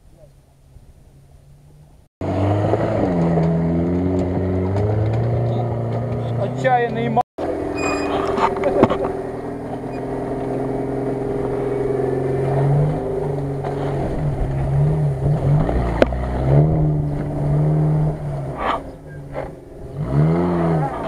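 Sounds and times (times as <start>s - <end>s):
suv engine revving: 2.2s - 21.0s.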